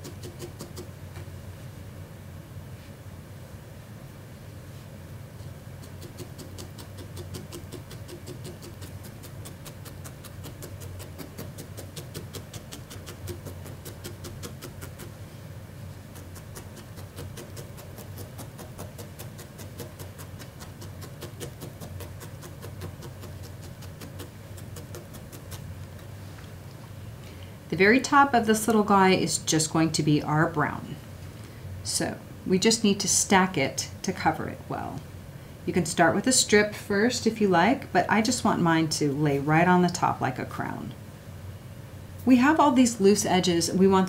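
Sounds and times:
felting needle poking wool: 0.0s - 0.9s, 5.8s - 15.1s, 16.1s - 26.2s
steady low hum: 0.0s - 44.0s.

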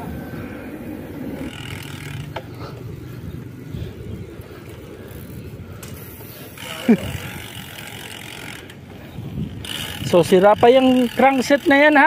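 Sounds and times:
wind over microphone: 0.0s - 11.5s
bicycle tyres on wet asphalt: 0.0s - 12.0s.

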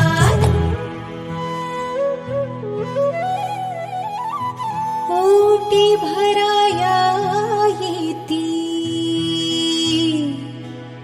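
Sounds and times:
soft slow background music: 0.2s - 11.0s.

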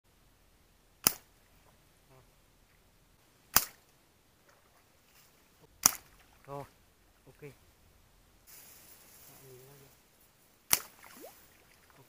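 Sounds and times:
crossbow shot snaps: 1.0s - 1.3s, 3.5s - 3.8s, 5.8s - 6.1s, 10.7s - 11.3s.

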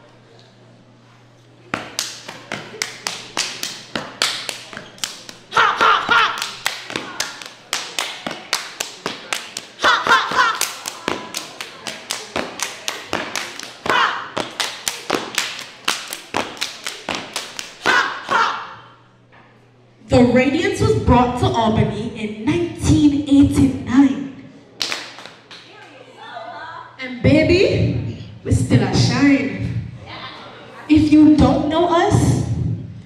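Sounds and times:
foot stomps: 1.7s - 2.8s
hand claps: 1.7s - 18.4s, 24.8s - 25.7s
group shouting: 5.5s - 7.4s, 9.8s - 11.3s, 13.8s - 14.4s, 17.8s - 19.0s.

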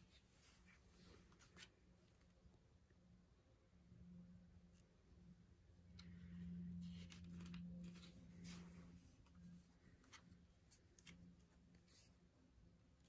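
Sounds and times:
low steady hum: 0.0s - 13.0s
page being turned: 6.8s - 12.1s.

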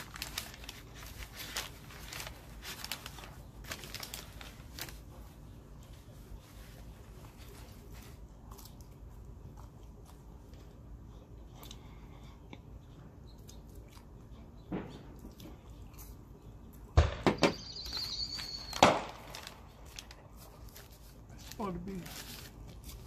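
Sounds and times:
foil and paper crinkling: 0.0s - 8.4s, 17.8s - 23.0s.

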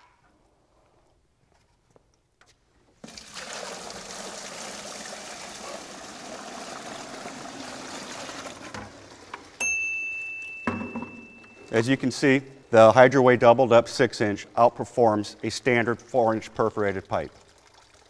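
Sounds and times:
water pouring and splashing: 3.0s - 9.6s, 15.2s - 18.0s.

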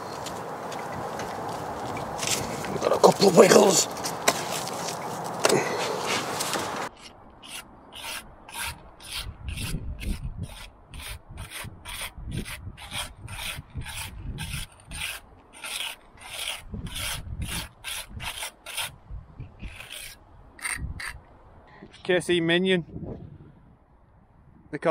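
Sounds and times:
brick jointer scraping mortar: 6.9s - 18.9s, 19.6s - 21.1s.

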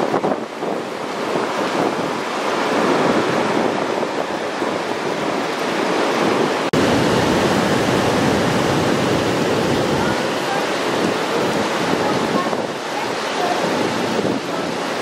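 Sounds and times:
wind buffeting microphone: 0.0s - 15.0s
wind rushing through trees: 0.0s - 15.0s.

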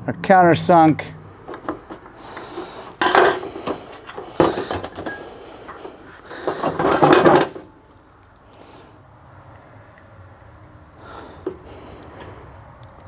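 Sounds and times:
rubbing of parts: 1.4s - 7.8s
sharp knocks of parts: 1.5s - 5.2s, 5.8s - 7.8s.

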